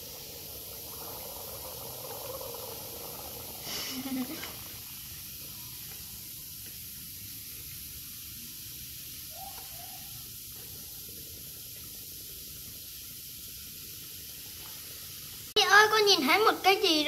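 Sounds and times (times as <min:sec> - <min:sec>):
bath bomb fizzing in water: 0:00.0 - 0:15.6.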